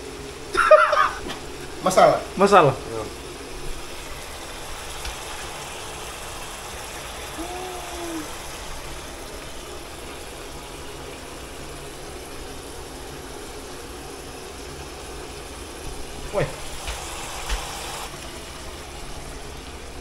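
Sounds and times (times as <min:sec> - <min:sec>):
meat sizzling in pot: 0:00.1 - 0:20.0
person humming: 0:07.4 - 0:08.4.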